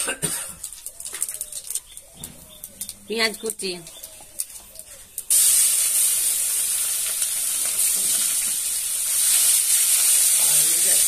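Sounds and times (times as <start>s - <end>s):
onion sizzling in hot oil: 5.2s - 11.0s.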